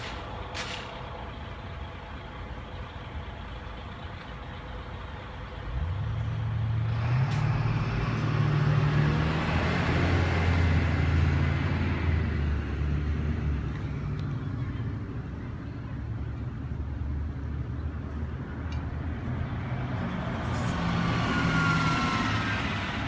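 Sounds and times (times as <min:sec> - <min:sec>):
low street hum: 0:00.0 - 0:23.0
vehicle passing close by: 0:05.8 - 0:14.2, 0:19.4 - 0:23.0.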